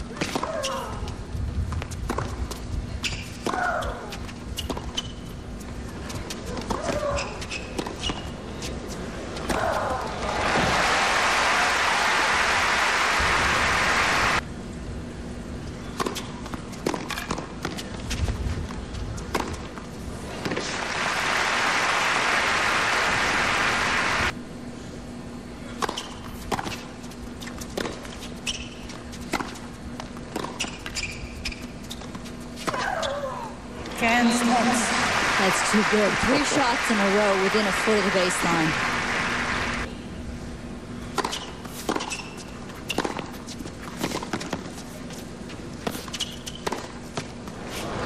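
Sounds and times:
faint steady hum: 7.4s - 47.6s
crowd applause: 10.1s - 14.4s, 20.6s - 24.3s, 34.2s - 39.9s.

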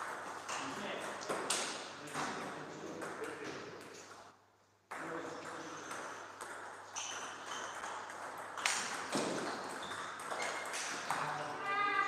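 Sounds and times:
table tennis ball rally: 4.9s - 11.8s.

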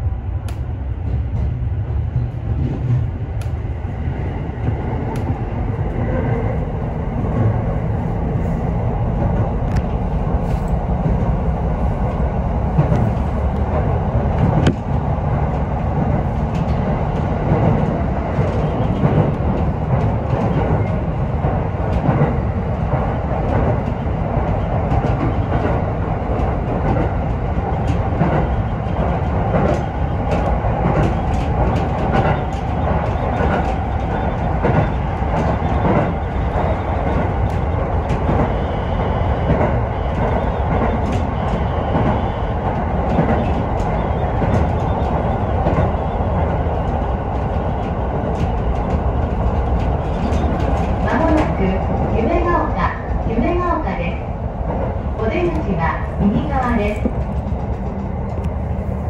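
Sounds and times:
train rumbling: 0.0s - 59.0s
wheels clicking over rail joints: 39.4s - 52.5s.

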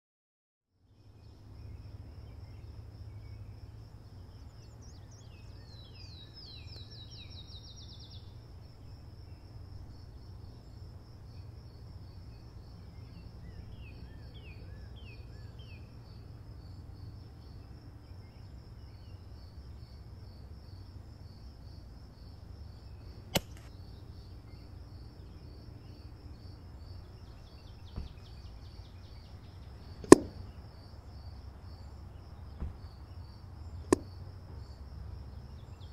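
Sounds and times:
bird chirps: 0.9s - 9.4s
air rifle shot: 23.3s - 23.7s, 30.0s - 30.4s
sharp click: 23.3s - 23.7s, 30.0s - 30.4s.

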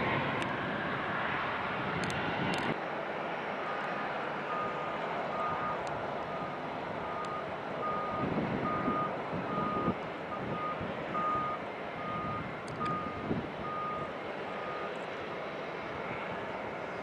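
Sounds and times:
reversing alarm beeping: 4.5s - 14.9s.

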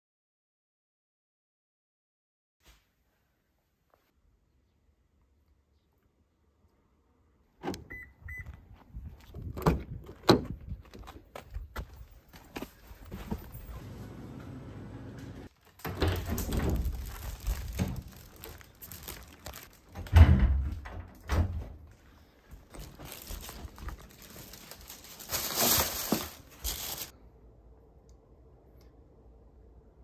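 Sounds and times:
plastic bag rustling: 15.5s - 20.1s, 22.7s - 27.1s.

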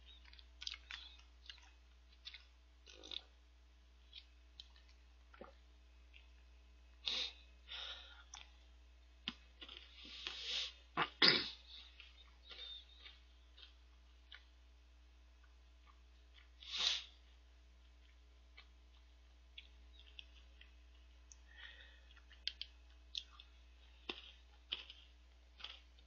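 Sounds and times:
eating clicks: 22.1s - 23.5s.

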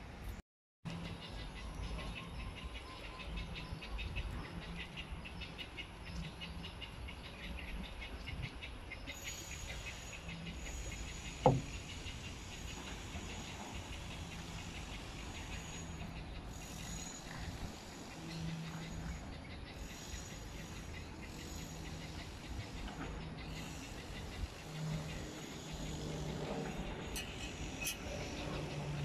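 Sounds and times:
high insect drone: 9.1s - 29.0s.

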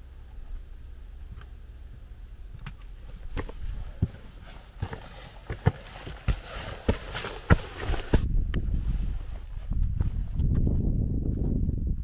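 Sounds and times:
low wind rumble: 0.0s - 12.0s
footsteps on gravel: 3.1s - 10.4s.

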